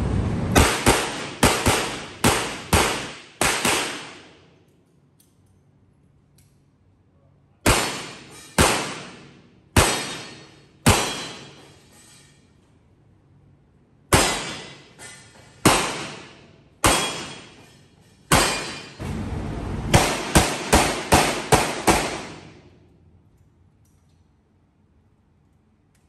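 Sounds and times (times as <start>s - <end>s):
revolver gunshots echoing: 0.5s - 4.4s, 7.6s - 11.5s, 14.1s - 14.8s, 15.6s - 17.6s, 18.3s - 19.0s, 19.9s - 22.7s.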